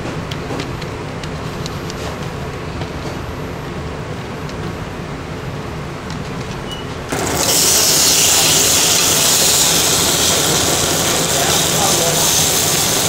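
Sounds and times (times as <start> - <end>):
tomato sizzling on grill pan: 7.1 - 13.0.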